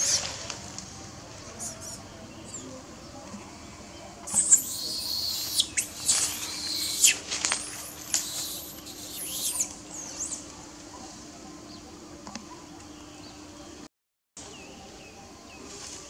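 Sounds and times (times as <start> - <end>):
monkeys shrieking: 1.6 - 2.0, 4.3 - 10.5.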